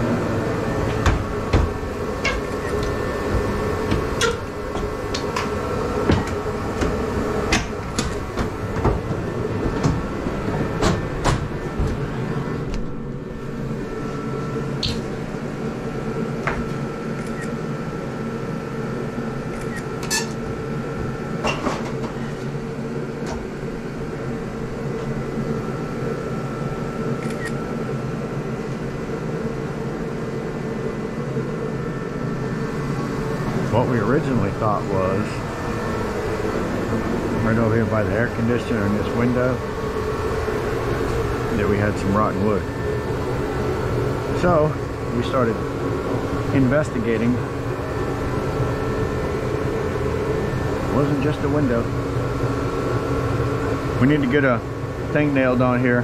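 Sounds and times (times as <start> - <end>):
mechanical hum: 0.0 - 56.0
sharp knocks and clatters: 0.8 - 12.0.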